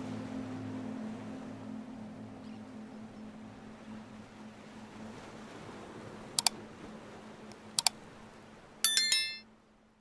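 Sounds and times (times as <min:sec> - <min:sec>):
electronic chime: 0:08.9 - 0:09.4.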